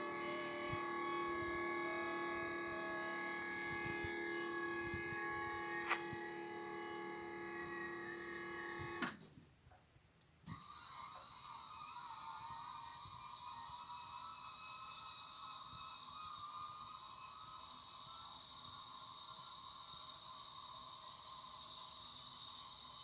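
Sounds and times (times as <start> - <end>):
higher motor whine: 0.0 - 9.2
hydraulic pump motor whining: 0.0 - 9.2, 10.5 - 18.4.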